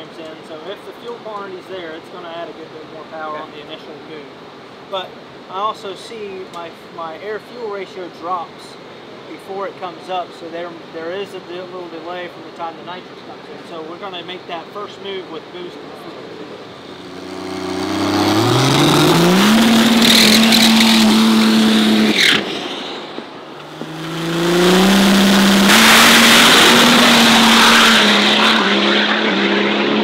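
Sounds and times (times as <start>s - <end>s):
loud rush of noise: 16.0s - 30.0s
diesel engine revving: 16.7s - 22.8s, 23.6s - 30.0s.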